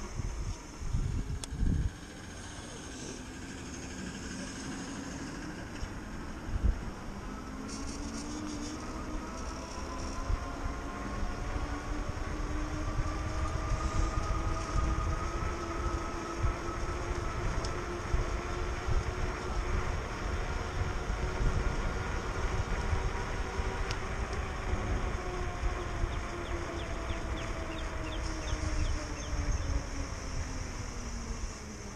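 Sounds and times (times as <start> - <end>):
wind buffeting microphone: 0.0 - 4.1, 5.0 - 31.9
electric bike motor whining: 0.0 - 31.9.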